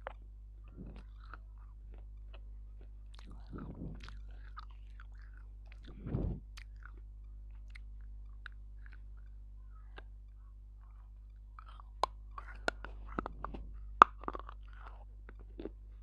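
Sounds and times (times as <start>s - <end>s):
crunchy biting and chewing: 0.0s - 9.4s, 10.8s - 16.0s
low electrical hum: 0.0s - 16.0s
low thump: 5.8s - 6.4s.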